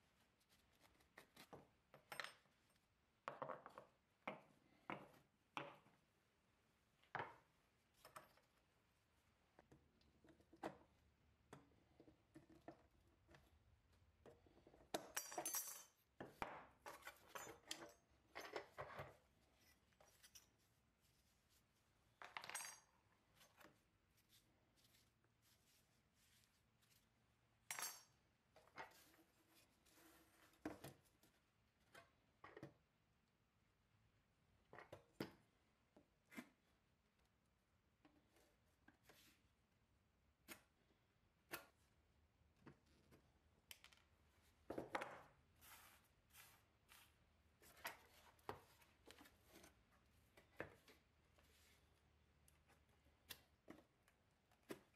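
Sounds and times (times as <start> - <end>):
metal parts clinking on wooden bench: 15.1 - 16.0, 22.2 - 22.9, 27.7 - 28.2.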